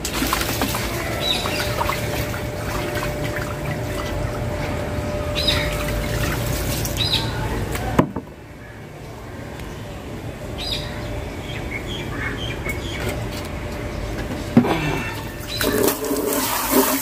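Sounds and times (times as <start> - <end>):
water splashing onto concrete: 0.0 - 4.4, 5.6 - 7.9, 15.4 - 17.0.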